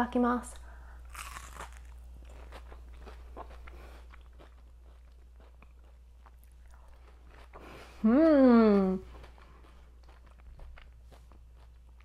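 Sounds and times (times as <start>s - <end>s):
low steady hum: 0.0s - 12.0s
crunchy chewing: 1.1s - 7.8s, 9.1s - 12.0s.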